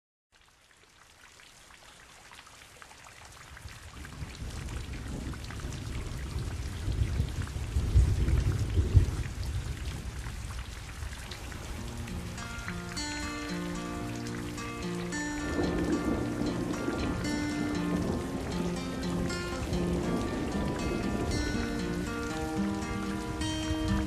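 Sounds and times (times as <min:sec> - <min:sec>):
steady rain falling: 0:00.3 - 0:24.0
low rumble of thunder: 0:03.7 - 0:11.3, 0:15.4 - 0:24.0.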